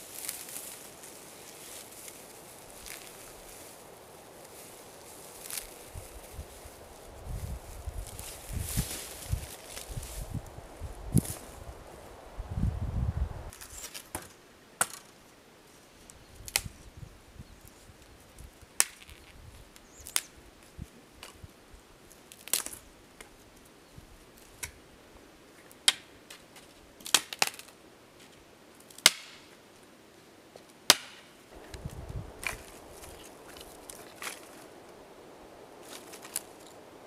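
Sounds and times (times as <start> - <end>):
dry branches snapping: 0.0 - 10.5, 11.1 - 11.7, 16.4 - 16.8, 18.8 - 19.3, 20.0 - 20.3, 22.3 - 22.9, 27.0 - 27.8, 28.9 - 29.4, 30.9 - 35.0, 35.7 - 36.9.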